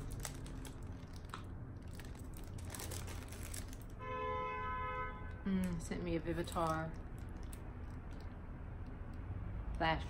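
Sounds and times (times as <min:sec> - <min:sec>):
plastic packaging crinkling: 0:00.0 - 0:04.0, 0:05.6 - 0:08.4.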